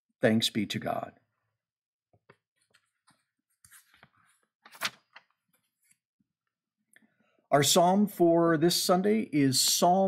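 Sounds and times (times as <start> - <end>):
book pages rustling: 2.6 - 6.0.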